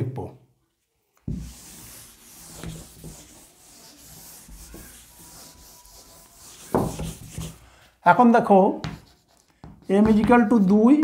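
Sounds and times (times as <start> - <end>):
duster scrubbing a blackboard: 1.3 - 7.6.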